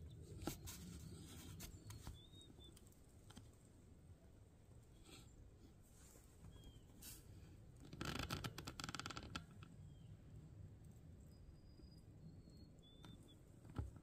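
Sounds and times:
small birds chirping: 0.0 - 3.1, 6.4 - 7.5, 9.4 - 10.4, 11.0 - 14.0
rustling and clicking handling noise: 0.0 - 3.8.

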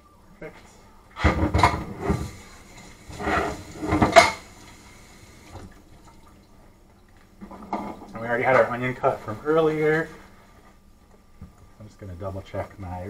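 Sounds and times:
dishes and utensils clattering: 3.1 - 4.6.

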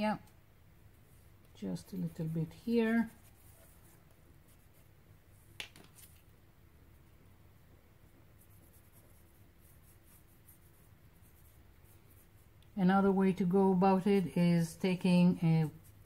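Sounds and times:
pencil and brush strokes on paper: 0.9 - 6.2, 8.0 - 16.0.

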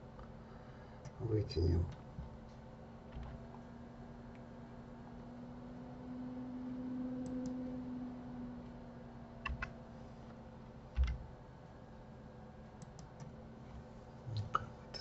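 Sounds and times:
low steady hum: 0.0 - 15.0
keyboard and mouse clicks: 9.4 - 9.7, 11.0 - 11.2.

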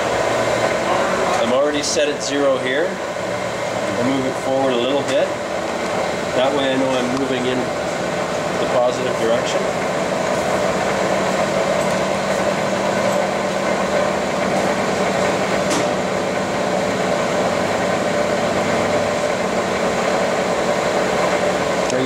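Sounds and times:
lathe motor and gear hum: 0.0 - 22.0.

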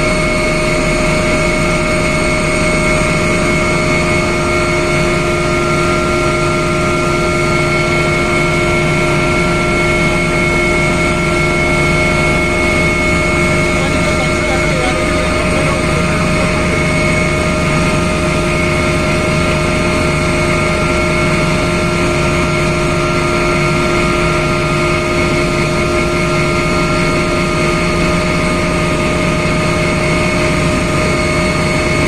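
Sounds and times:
constant whining tones: 0.0 - 32.0
helicopter rotor and engine rumble: 0.0 - 32.0.

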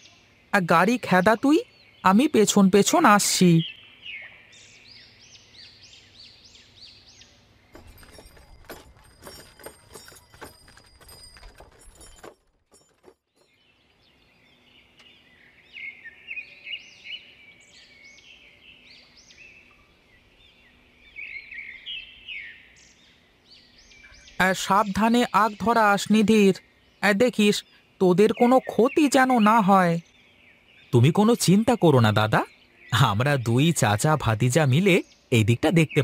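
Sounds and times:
small birds chirping: 0.0 - 36.0
knocking and clattering: 7.7 - 13.5.

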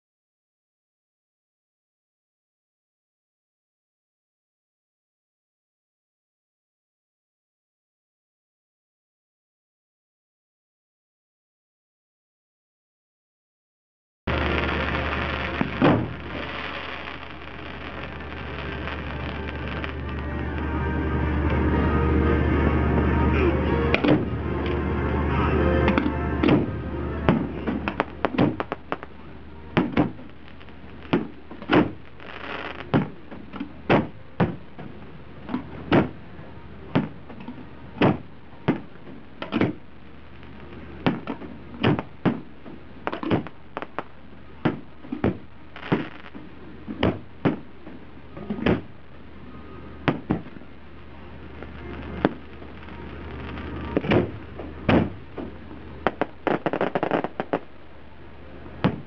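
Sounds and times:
fireworks bursting: 14.3 - 21.8, 23.4 - 58.0.

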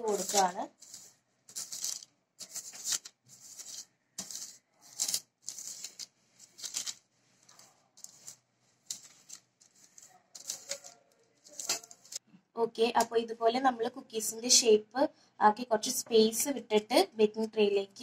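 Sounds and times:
pastry brush strokes on paper: 0.0 - 12.2.

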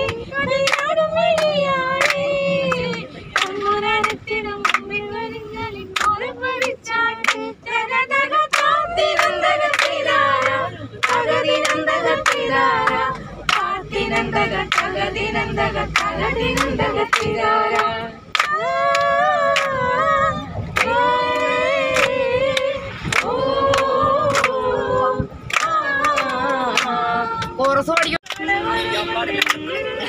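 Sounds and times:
hand claps: 0.0 - 4.9, 6.0 - 7.4, 8.5 - 14.9, 16.0 - 19.7, 20.8 - 24.6, 25.5 - 28.5, 29.4 - 29.6
women singing together: 0.0 - 30.0.

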